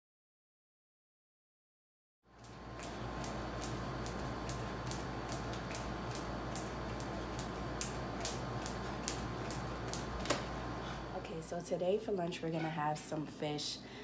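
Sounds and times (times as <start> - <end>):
jump rope slapping floor: 2.4 - 10.5.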